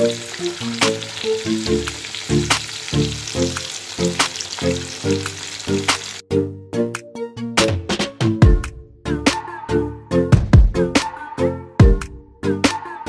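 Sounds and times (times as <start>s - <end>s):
fish deep-frying in oil: 0.0s - 6.2s
background music with beat: 6.8s - 13.0s.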